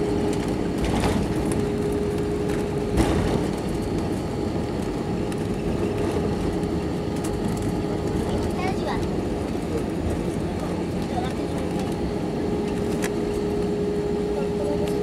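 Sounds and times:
jet engines and wheels rumbling: 0.0 - 15.0.

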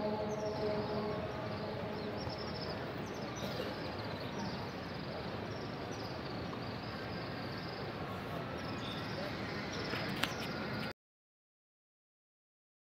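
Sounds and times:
crowd hubbub: 0.0 - 5.8.

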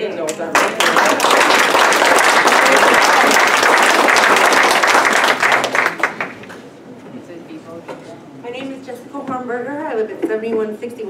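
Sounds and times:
audience applauding: 0.5 - 6.5.

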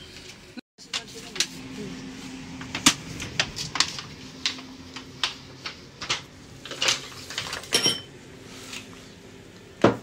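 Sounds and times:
dishes knocking and clattering: 6.0 - 8.1
ringing dish clink: 7.7 - 8.1.

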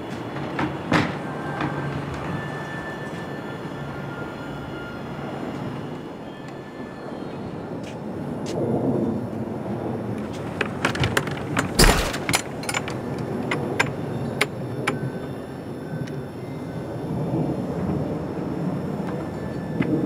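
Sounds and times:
padlock clicking and clanking: 10.9 - 14.5.

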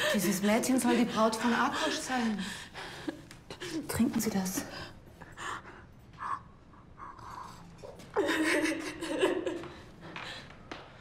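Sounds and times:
woman sobbing: 7.7 - 9.6.

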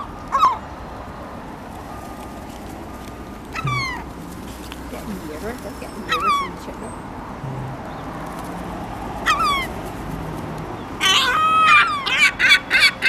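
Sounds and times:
gulls calling: 3.5 - 4.3.

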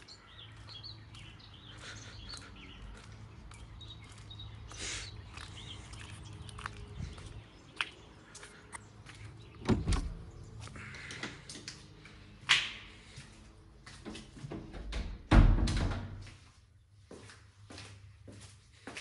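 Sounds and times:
door thudding shut: 9.6 - 10.2, 14.7 - 16.2.

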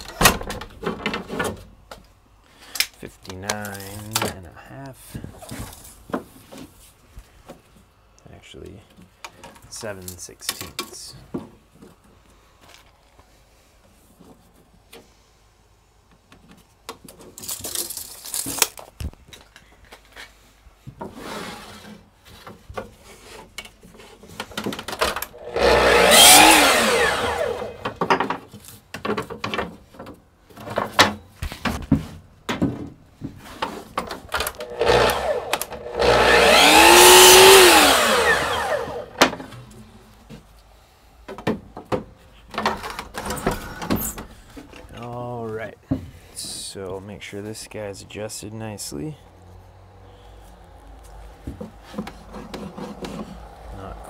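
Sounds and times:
miter saw cutting wood: 25.1 - 28.1, 34.4 - 39.5.

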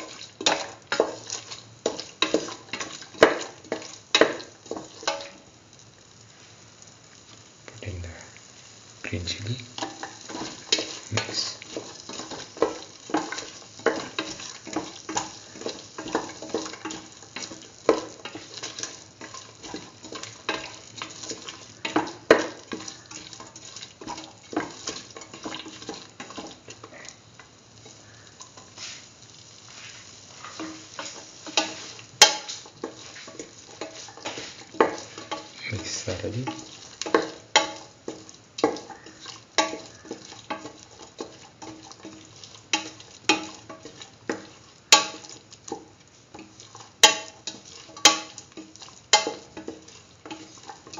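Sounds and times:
frying sizzle: 0.0 - 50.9
utensil scraping a metal pan: 29.7 - 45.4.

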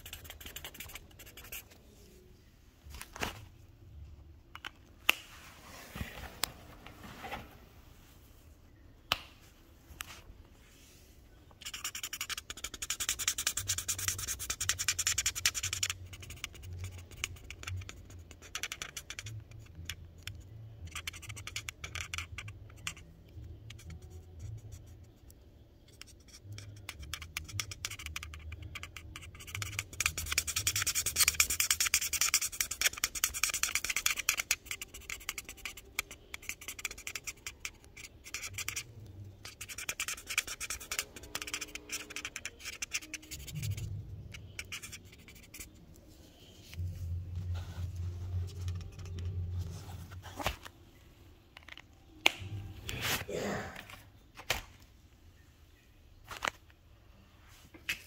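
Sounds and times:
marker scratching on paper: 0.0 - 2.0, 11.6 - 50.7.

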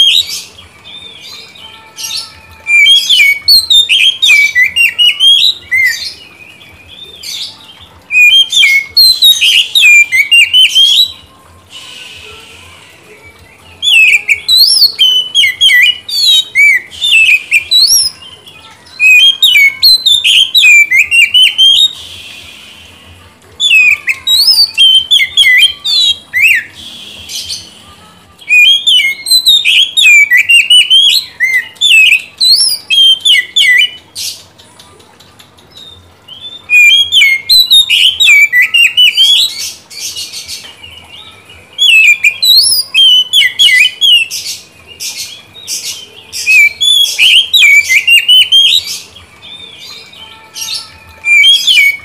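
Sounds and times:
magpie-robin singing: 0.0 - 22.9, 23.5 - 34.6, 35.5 - 52.0
harsh rasping bird notes: 19.1 - 33.8.

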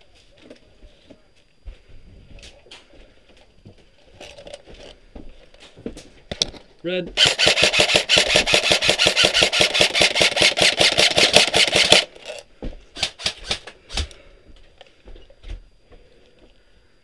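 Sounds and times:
sharp clicks: 7.2 - 12.1
airsoft rifle full-auto firing: 7.2 - 12.2, 13.0 - 13.7.

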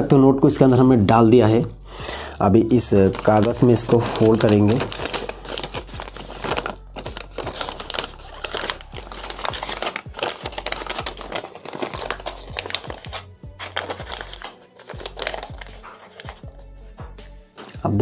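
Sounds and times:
background music: 0.0 - 18.0
paper crinkling and rustling: 2.8 - 16.4, 17.6 - 17.8.

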